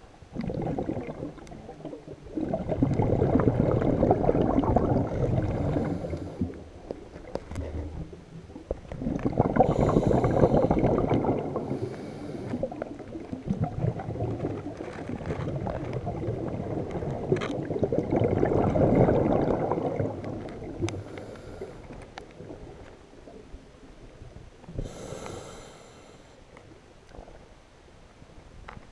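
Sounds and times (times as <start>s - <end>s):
air bubbling underwater: 0.3s - 6.7s, 7.5s - 21.0s.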